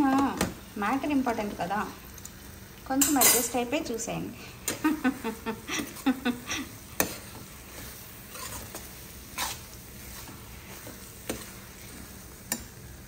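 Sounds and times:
metal ladle scraping curry in pan: 6.9s - 12.6s.

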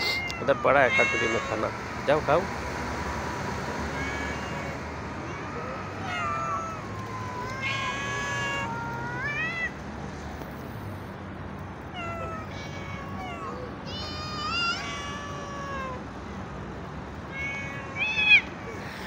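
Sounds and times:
cats meowing: 0.0s - 2.4s, 3.8s - 9.8s, 11.9s - 16.1s, 17.3s - 19.0s.

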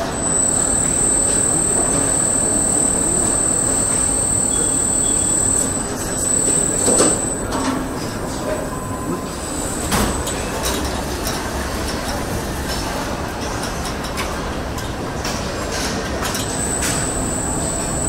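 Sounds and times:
high thin machine whine: 0.0s - 12.4s, 16.2s - 18.0s
assembly line machinery din: 0.0s - 12.9s, 16.3s - 18.0s.

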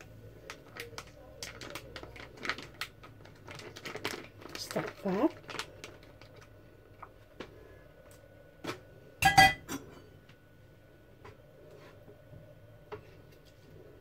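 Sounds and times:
metal kitchenware clattering: 9.2s - 10.0s.

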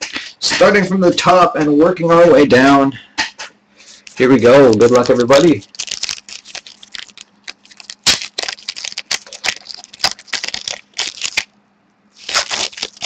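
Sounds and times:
cards being handled: 3.9s - 11.5s
wrapper crinkling: 4.0s - 13.0s.

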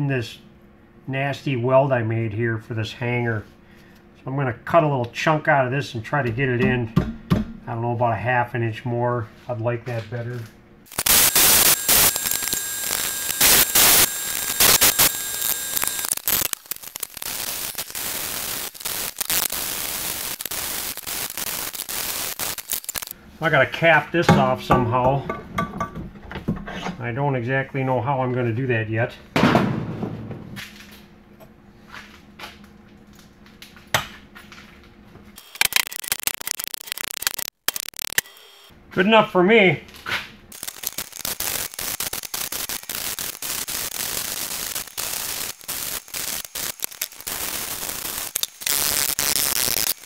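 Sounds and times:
short loud noise bursts: 10.9s - 16.5s
welding arc crackling: 10.9s - 23.2s, 35.4s - 38.7s, 40.5s - 50.0s.

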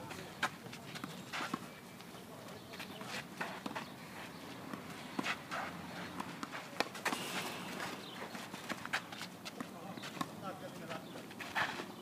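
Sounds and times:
footsteps and shoe scuffs on clay: 0.0s - 12.0s
racket hitting tennis ball: 5.2s - 9.0s.

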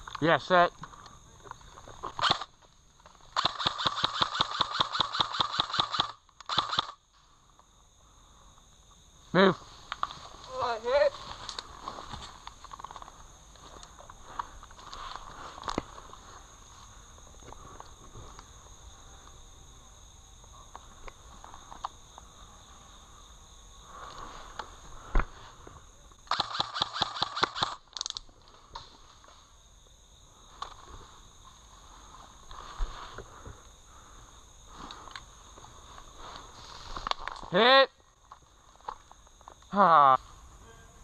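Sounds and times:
insects buzzing: 0.0s - 41.0s
airsoft rifle shots: 2.2s - 2.5s, 3.4s - 7.0s, 26.3s - 27.8s.

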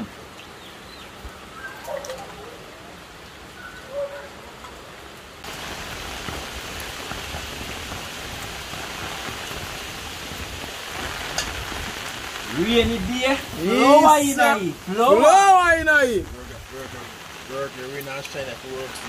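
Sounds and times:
steady rain falling: 0.0s - 19.0s.

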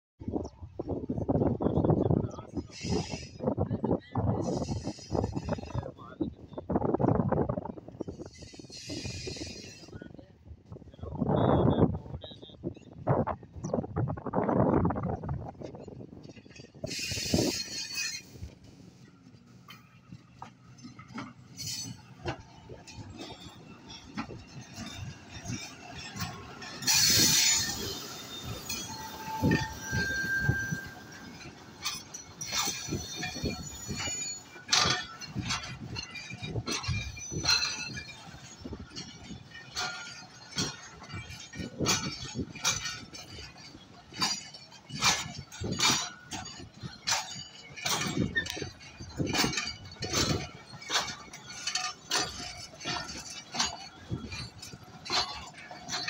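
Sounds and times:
train wheels clanking over rail joints: 4.4s - 10.9s, 14.9s - 56.0s
wheel squeals: 15.8s - 56.0s.

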